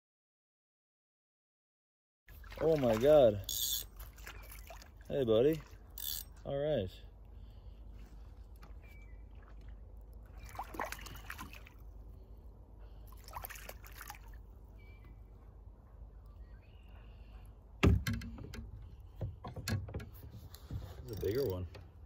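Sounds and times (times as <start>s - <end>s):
water sloshing and dripping: 2.3s - 6.4s, 7.2s - 15.2s.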